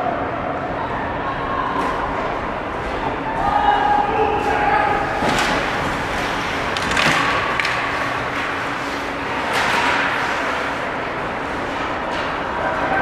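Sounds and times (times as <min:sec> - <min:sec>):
sticks and puck knocking: 0:06.7 - 0:07.9.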